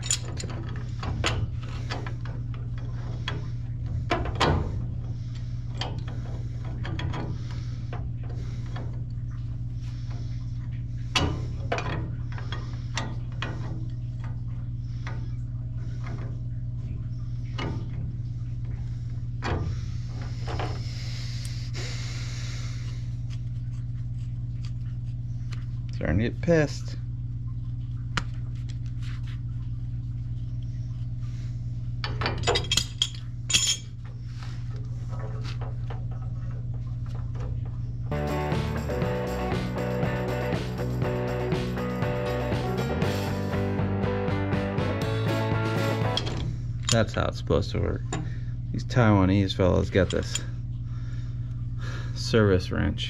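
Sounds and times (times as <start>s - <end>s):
pipe wrench clanking on iron pipe: 0.0s - 9.0s, 11.1s - 14.3s, 49.8s - 50.5s
steady low hum: 0.0s - 53.0s.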